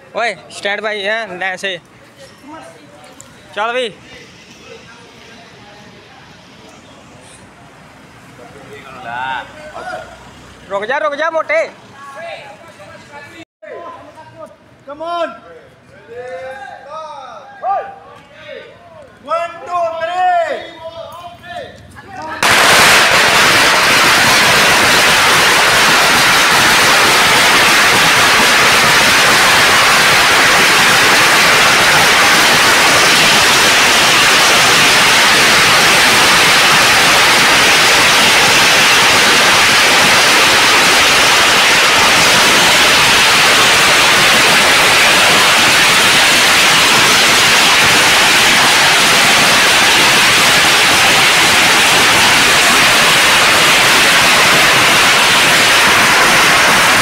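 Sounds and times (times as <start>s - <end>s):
firecrackers crackling: 22.2s - 57.0s.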